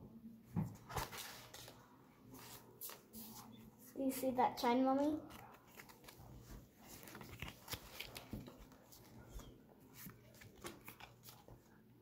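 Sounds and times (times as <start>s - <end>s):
trading cards clicking and rustling: 5.0s - 11.6s.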